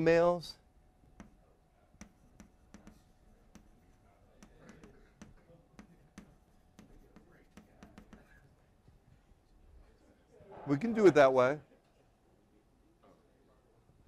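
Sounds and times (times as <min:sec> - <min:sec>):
chalk tapping on blackboard: 0:01.2 - 0:01.4, 0:02.0 - 0:08.5.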